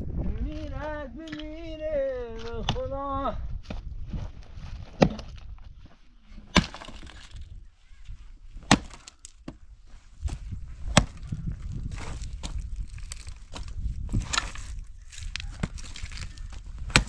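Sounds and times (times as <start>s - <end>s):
axe chopping firewood: 4.9s - 5.4s, 6.5s - 7.4s, 8.6s - 9.6s, 10.8s - 11.2s, 15.5s - 17.0s.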